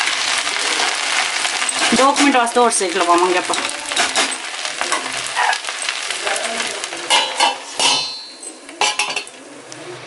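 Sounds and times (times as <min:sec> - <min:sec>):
metal spoon scraping a pan: 0:01.5 - 0:02.6, 0:03.4 - 0:06.0, 0:07.0 - 0:09.4
metal lid clanging on a pan: 0:07.0 - 0:09.4.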